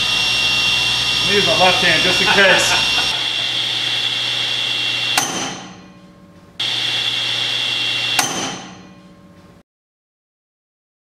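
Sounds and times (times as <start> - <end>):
table saw whine: 0.0 - 5.8, 6.6 - 8.9.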